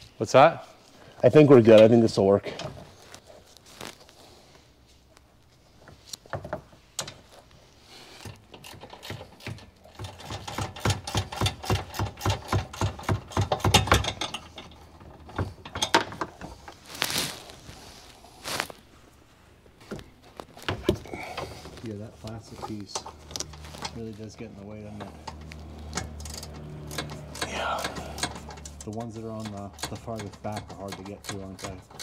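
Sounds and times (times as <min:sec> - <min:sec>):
brief rustle: 0:16.8 - 0:18.8
ratchet wrench clicking: 0:25.2 - 0:32.0.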